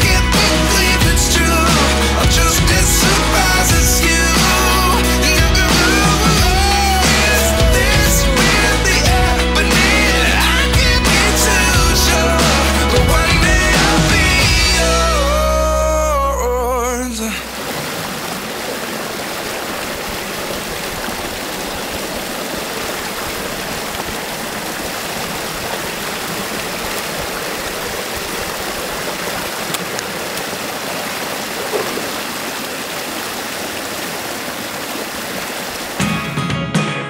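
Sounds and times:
water rushing through a dam breach: 17.0s - 36.0s.

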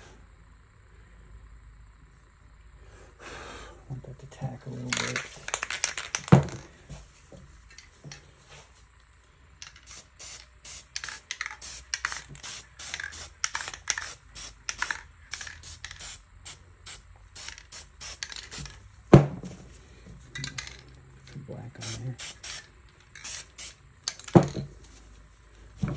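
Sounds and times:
spray paint can bursts: 9.6s - 18.8s, 21.8s - 24.4s.

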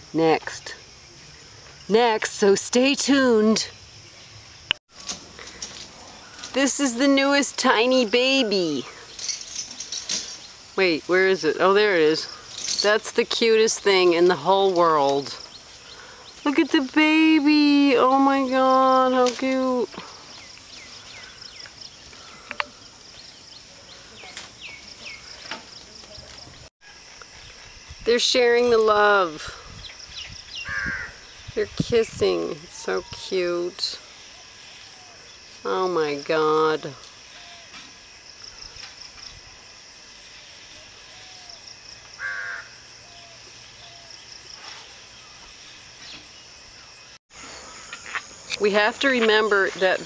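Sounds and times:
insects buzzing: 0.0s - 50.0s
bird chirping: 20.1s - 26.7s.

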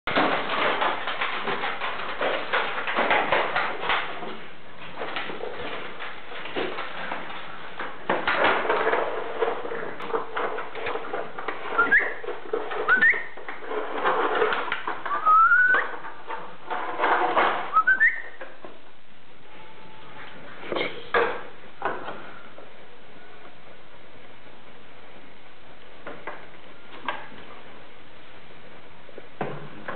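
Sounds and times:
puppy paws scrabbling on tiles: 0.1s - 18.9s, 20.0s - 27.9s.

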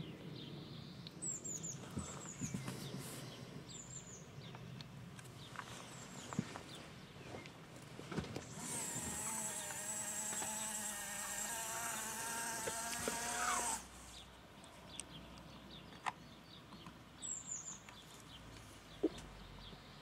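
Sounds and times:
small electric motor whirring: 8.4s - 14.2s.

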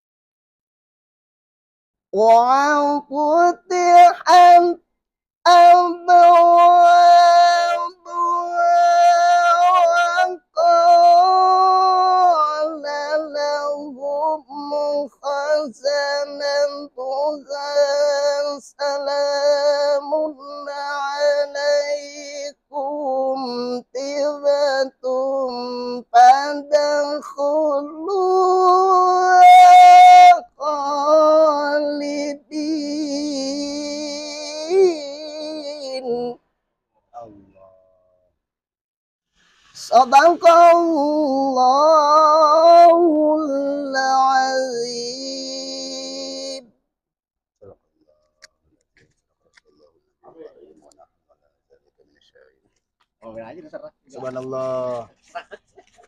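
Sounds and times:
man chanting: 2.2s - 4.8s, 5.5s - 36.4s, 37.2s - 38.0s, 39.8s - 46.6s, 53.2s - 55.2s.

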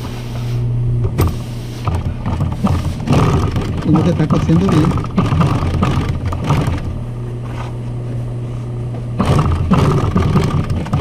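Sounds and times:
steady machine hum: 0.0s - 11.0s
sewing machine clattering: 1.9s - 6.9s, 9.2s - 11.0s.

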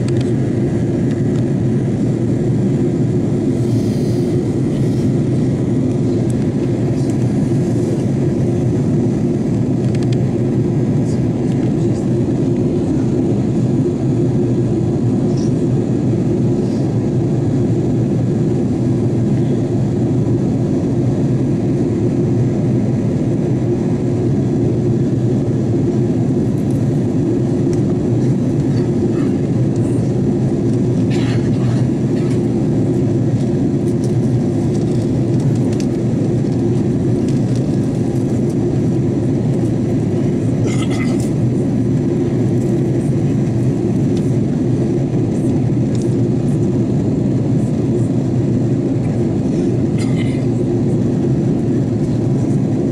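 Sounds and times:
airliner cabin engine rush: 0.0s - 52.9s.

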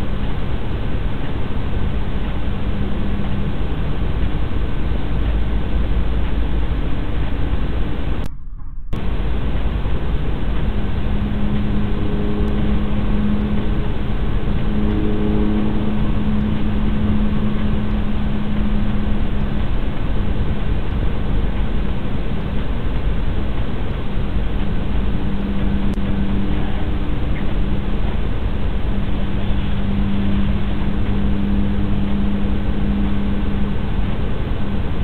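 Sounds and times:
low droning hum: 0.0s - 35.0s.

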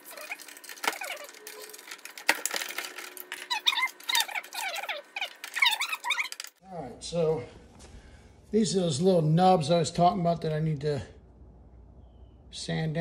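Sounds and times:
metal parts clicking and knocking: 0.0s - 6.6s.

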